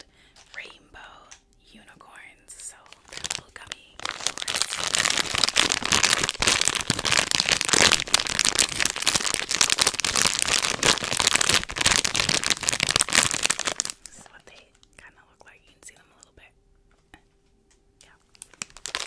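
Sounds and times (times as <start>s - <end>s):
plastic wrapper crinkling: 0.0s - 1.4s, 2.7s - 15.0s, 18.2s - 19.0s.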